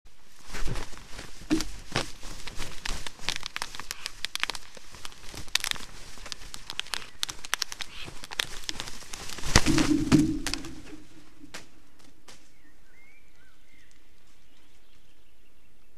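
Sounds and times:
feathers brushing: 0.1 - 12.6
bird wings flapping: 0.2 - 12.6
stick nest crackling and snapping: 0.3 - 12.6.

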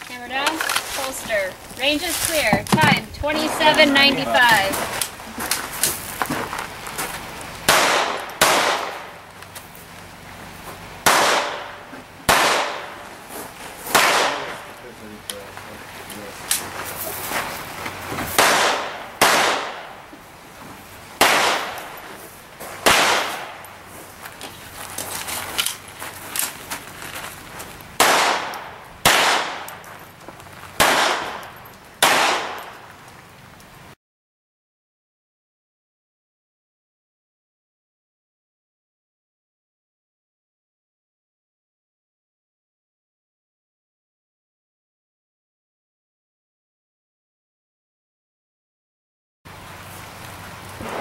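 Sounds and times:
handgun shots with echo: 7.7 - 9.1, 11.0 - 13.0, 13.9 - 14.7, 18.4 - 19.9, 21.2 - 21.9, 22.8 - 23.7, 28.0 - 29.8, 30.8 - 32.8.

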